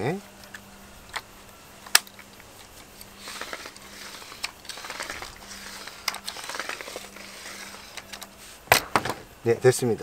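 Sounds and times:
reel crank clicking and rattling: 1.9s - 9.0s.

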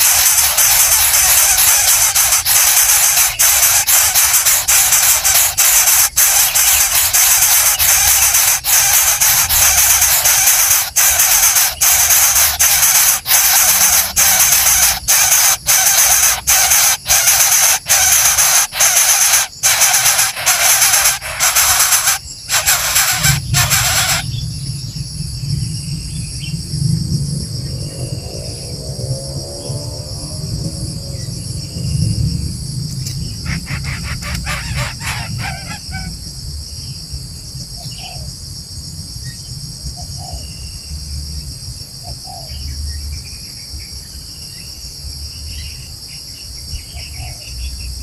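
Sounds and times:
loud steady hissing: 0.0s - 25.9s
crickets trilling: 0.0s - 48.0s
low rumble: 23.4s - 33.6s.

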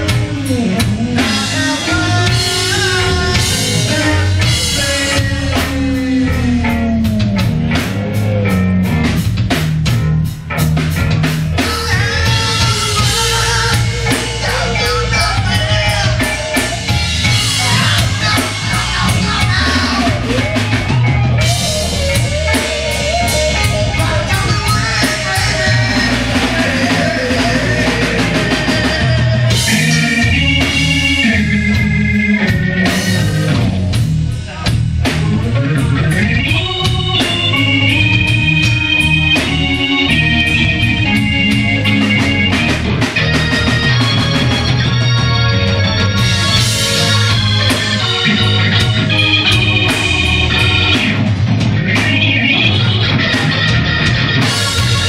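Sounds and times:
person singing into a microphone: 0.0s - 7.4s, 11.6s - 16.8s, 17.4s - 21.7s, 22.5s - 33.2s
bass guitar: 0.0s - 55.0s
drum kit: 0.0s - 55.0s
electric guitar: 0.0s - 55.0s.

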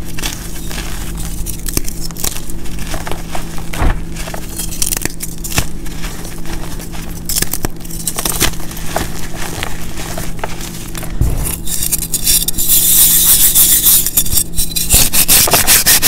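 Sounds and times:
chalk crunching in hands: 0.0s - 16.0s
low hum: 11.0s - 12.6s.

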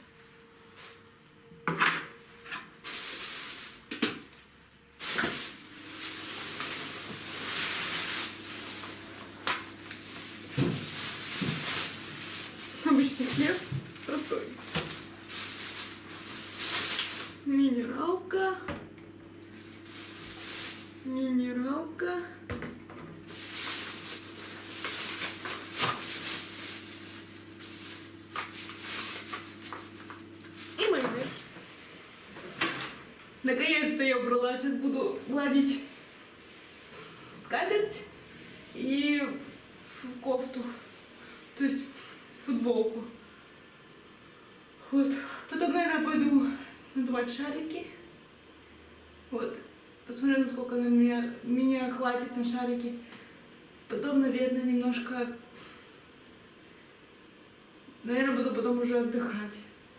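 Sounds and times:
plastic bag rustling: 2.7s - 17.6s, 19.5s - 21.2s, 23.1s - 31.5s.

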